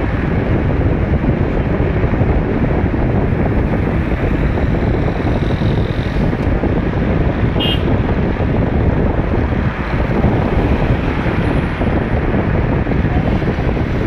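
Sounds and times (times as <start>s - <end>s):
car tyres and engine rumble: 0.0s - 14.0s
wind buffeting microphone: 0.0s - 14.0s.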